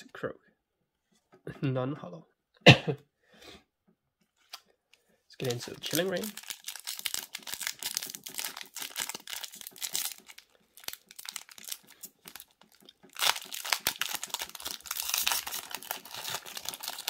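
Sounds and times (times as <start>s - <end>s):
foil wrapper crinkling: 5.4s - 17.0s
foil wrapper ripping: 5.4s - 17.0s.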